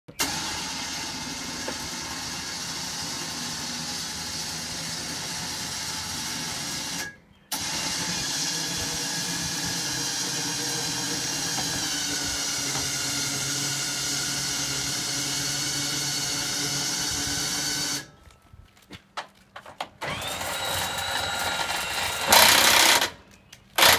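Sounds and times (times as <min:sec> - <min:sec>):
motor running: 0:00.2 - 0:18.1.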